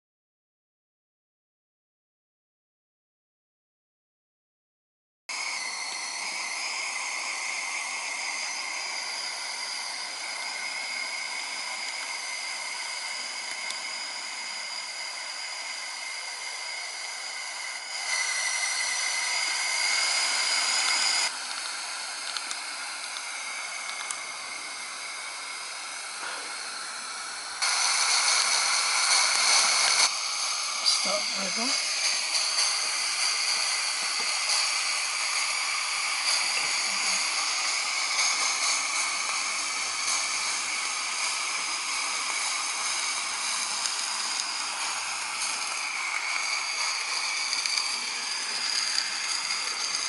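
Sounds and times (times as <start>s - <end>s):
steam hissing from boiler: 5.3s - 50.0s.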